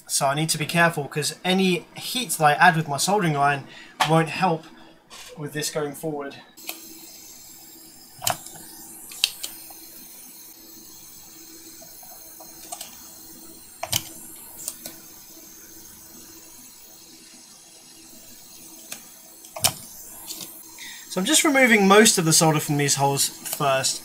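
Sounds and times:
steady hiss: 6.6s - 24.0s.

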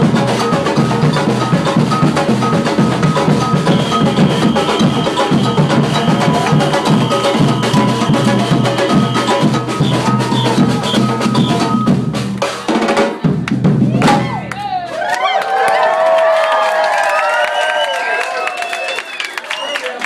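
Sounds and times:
samba drum ensemble: 0.0s - 14.7s.

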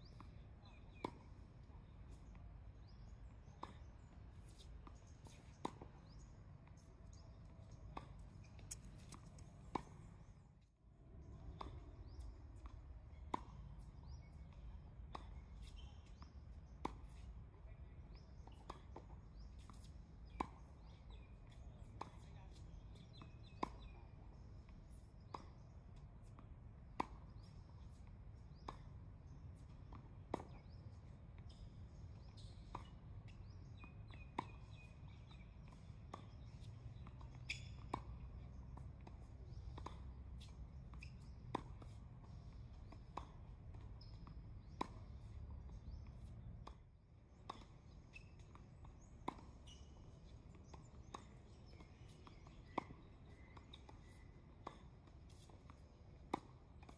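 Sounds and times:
tennis ball bounces: 0.2s - 10.4s, 11.2s - 17.3s, 18.1s - 28.9s, 29.5s - 56.9s
tennis balls struck by rackets: 29.5s - 56.6s.

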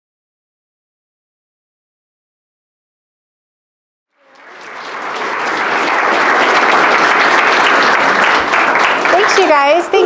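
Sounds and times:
audience clapping: 4.1s - 10.0s.

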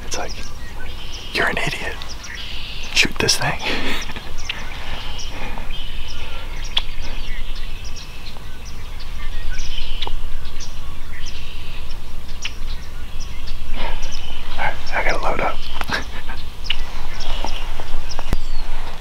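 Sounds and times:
small birds chirping: 0.0s - 19.0s
wind buffeting microphone: 0.0s - 19.0s.

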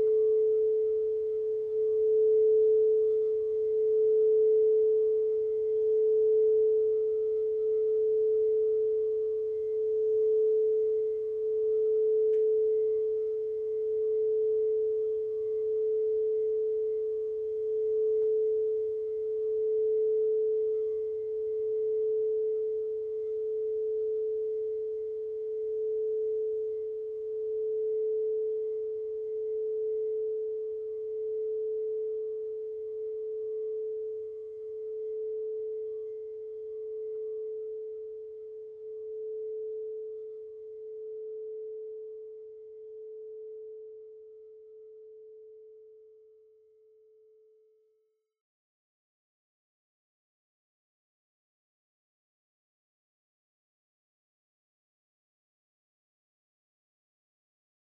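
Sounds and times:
singing bowl ringing: 0.0s - 23.6s.

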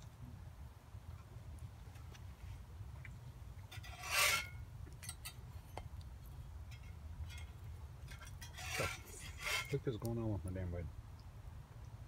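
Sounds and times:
metal spatula scraping frying pan: 3.7s - 4.6s, 8.1s - 9.8s.

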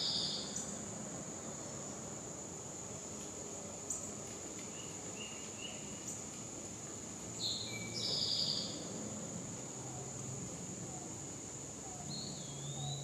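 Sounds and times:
bird chirps: 7.4s - 8.8s, 12.0s - 13.0s.

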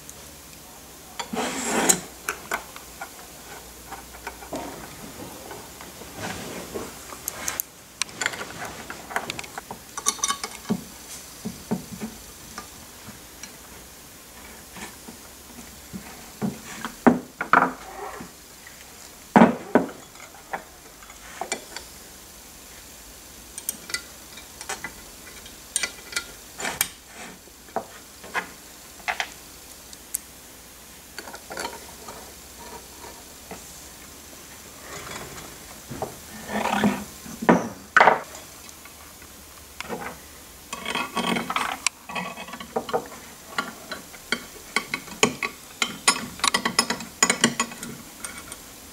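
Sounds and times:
metal hardware clicks and clinks: 10.0s - 10.8s.

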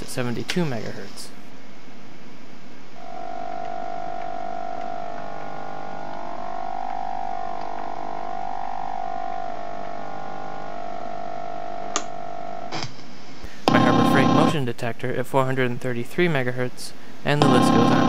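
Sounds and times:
radio buzzing tone: 2.9s - 12.9s, 13.7s - 14.6s.

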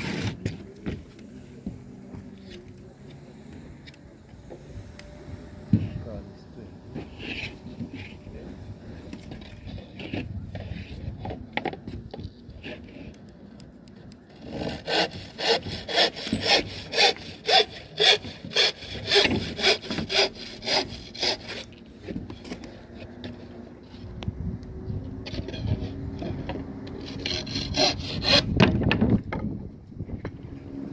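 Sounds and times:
hand saw cutting wood: 0.0s - 0.7s, 6.9s - 11.4s, 14.3s - 23.0s, 25.3s - 28.8s
light scrapes and knocks: 6.9s - 14.6s, 21.6s - 24.2s, 25.2s - 27.1s.

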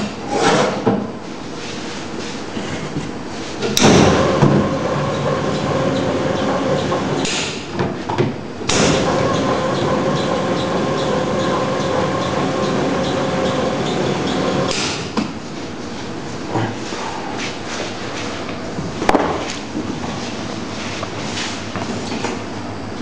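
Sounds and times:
dough sheeter motor humming: 1.5s - 23.0s
machine clatter: 3.8s - 7.6s, 8.7s - 15.1s.

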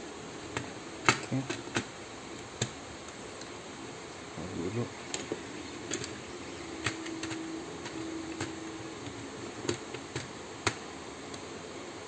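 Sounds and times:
steady hum: 0.0s - 12.0s
plastic parts clicking: 0.5s - 3.5s, 5.1s - 6.2s, 6.8s - 11.5s.

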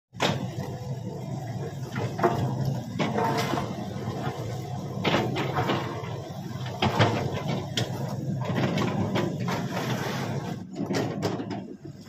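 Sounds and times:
excavator diesel engine running: 0.2s - 12.0s
metal knocks and clanks: 10.7s - 11.7s.

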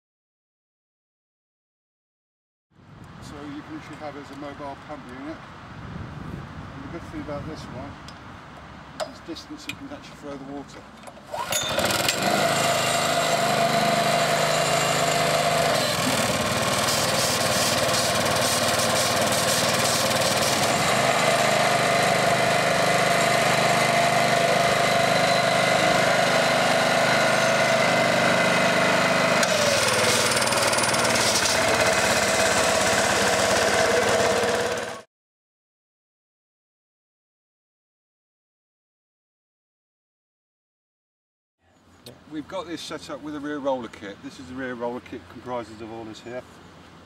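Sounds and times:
small pump engine running: 11.1s - 35.1s
water jet spraying: 16.0s - 20.9s.

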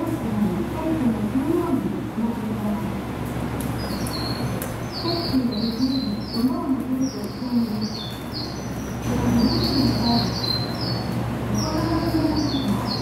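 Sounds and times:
steady low hum: 0.0s - 13.0s
small birds chirping: 3.6s - 13.0s.

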